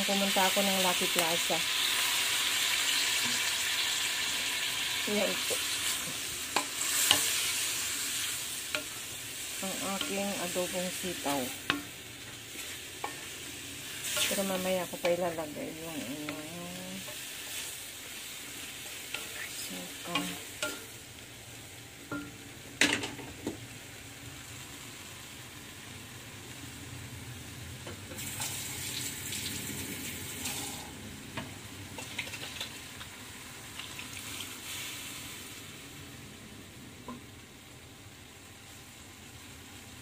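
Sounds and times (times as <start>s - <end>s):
food sizzling in a wok: 0.0s - 40.0s
utensil scraping and knocking wok: 5.1s - 21.0s.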